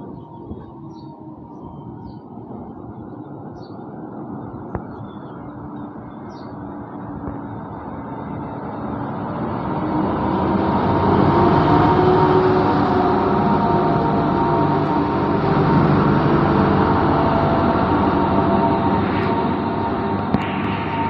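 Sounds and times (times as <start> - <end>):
locomotive diesel engine drone: 0.0 - 21.0.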